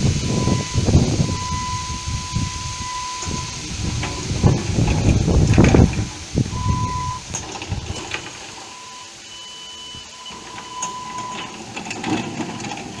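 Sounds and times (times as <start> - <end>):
low rumble: 0.0 - 8.0
electric motor whining: 0.0 - 13.0.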